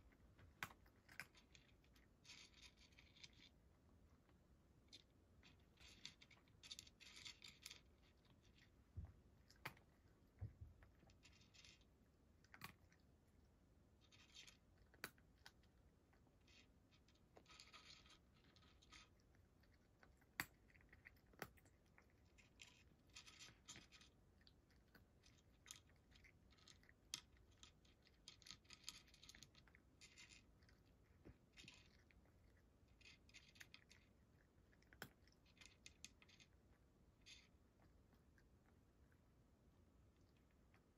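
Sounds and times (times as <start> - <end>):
cat crunching dry kibble: 0.1 - 3.6, 5.5 - 8.8, 9.4 - 13.3, 14.0 - 38.7.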